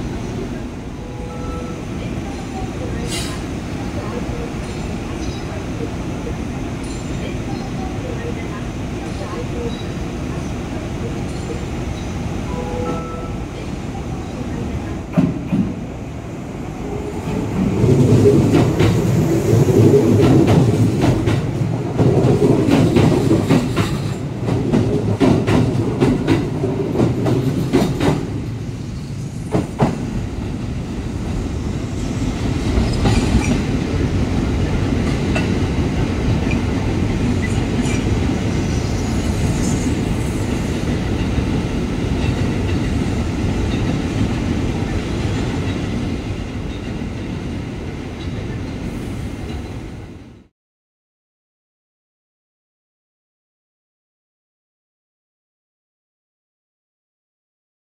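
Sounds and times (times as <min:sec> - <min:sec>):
train rumble: 0:00.0 - 0:50.5
train wheels clacking: 0:20.2 - 0:28.4.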